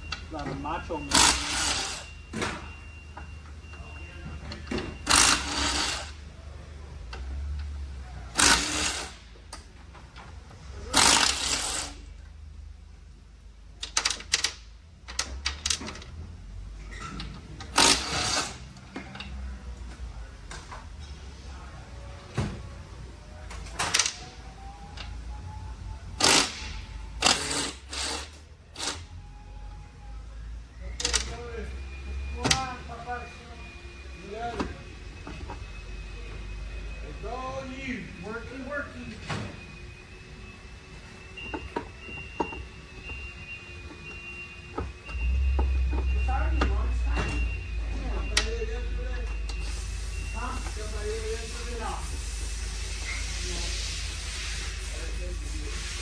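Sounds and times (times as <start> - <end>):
steady low hum: 29.2 - 56.0.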